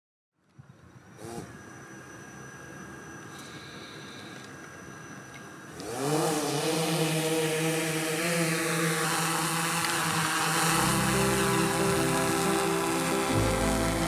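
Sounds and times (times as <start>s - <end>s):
drone propellers buzzing: 5.5s - 14.0s
music with low bass: 10.7s - 14.0s.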